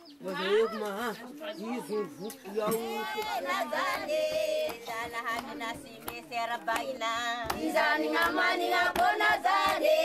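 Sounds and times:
group of voices singing: 0.2 - 10.0
hand clapping: 2.3 - 9.9.

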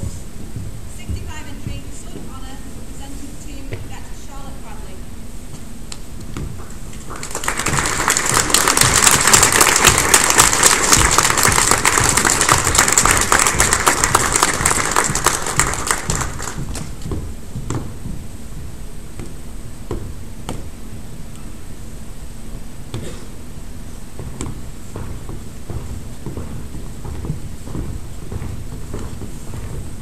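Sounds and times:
audience applauding: 7.1 - 16.9.

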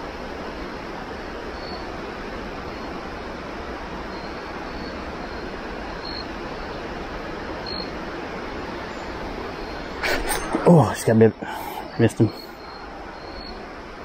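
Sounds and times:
stream running over rocks: 0.0 - 14.0
faint high peeps: 7.6 - 7.9, 9.6 - 13.7.

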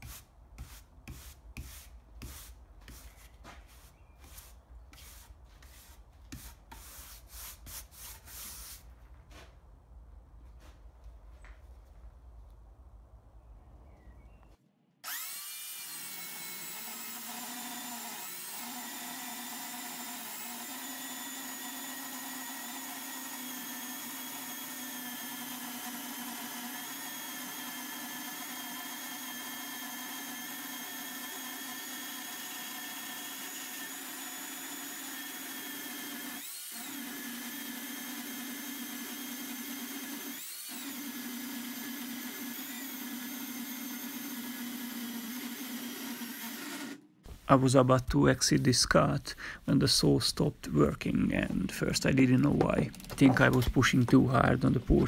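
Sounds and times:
electric chainsaw whining under load: 15.0 - 47.2.

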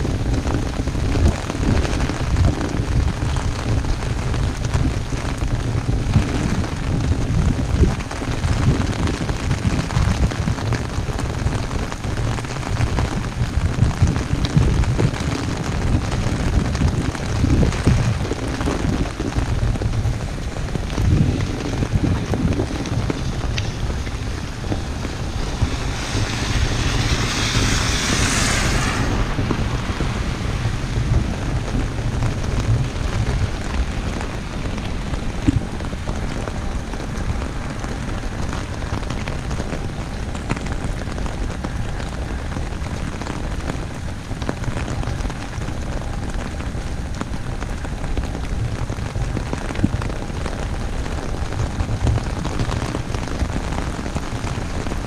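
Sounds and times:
heavy rain on an umbrella: 0.0 - 55.0
wind rumble on microphone: 0.0 - 55.0
loud hiss: 24.8 - 30.1.

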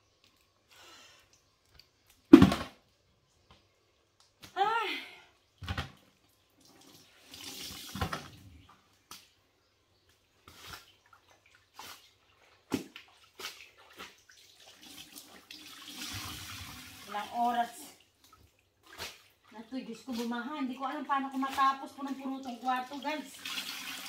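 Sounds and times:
water splashing into plastic bucket: 2.3 - 2.8, 6.6 - 8.4, 10.5 - 20.3, 21.2 - 24.0.

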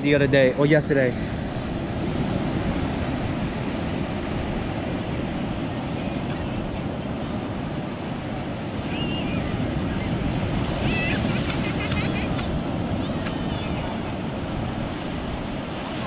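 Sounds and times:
ocean surf breaking: 0.0 - 16.0
wind buffeting microphone: 0.0 - 16.0
distant children shouting: 8.8 - 14.2.

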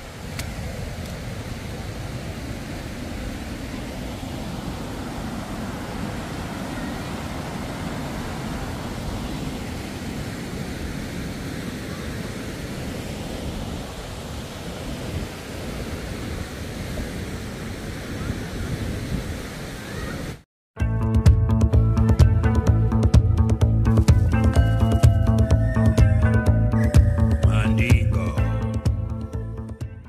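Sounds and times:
river rushing over rapids: 0.0 - 20.4.

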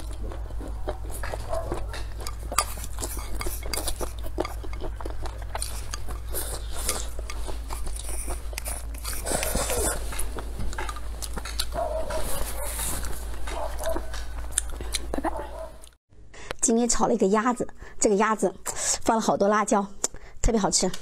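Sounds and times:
slurping and chewing: 0.0 - 16.0
steady low hum: 0.0 - 16.6.

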